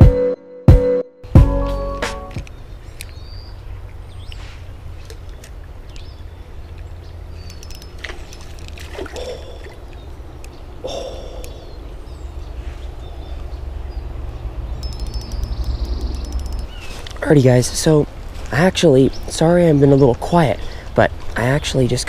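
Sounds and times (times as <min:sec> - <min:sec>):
creek water trickling: 0:02.5 - 0:22.0
light clicks: 0:06.7 - 0:08.8.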